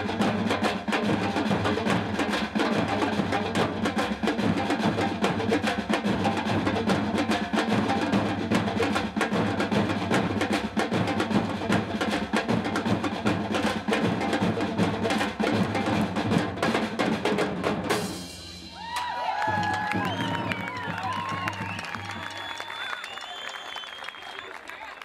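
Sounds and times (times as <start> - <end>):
percussion ensemble drumming: 0.0 - 23.1
audience whooping and cheering: 18.7 - 25.0.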